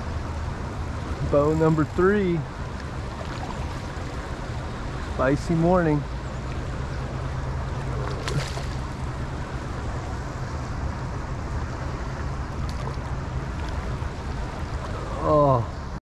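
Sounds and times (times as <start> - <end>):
river water rushing over rocks: 6.4 - 10.1.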